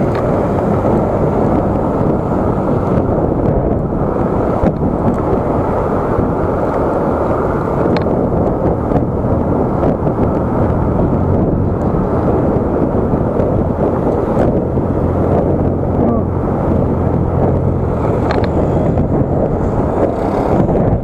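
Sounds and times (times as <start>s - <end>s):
road noise: 0.0s - 21.0s
wind rush on microphone: 0.0s - 21.0s.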